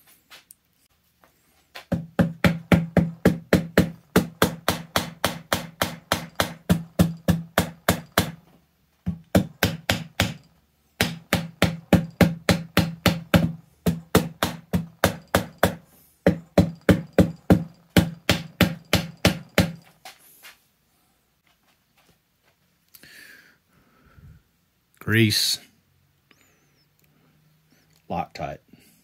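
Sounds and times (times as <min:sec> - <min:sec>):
mallet knocking on metal: 0:01.9 - 0:08.4, 0:09.1 - 0:19.8.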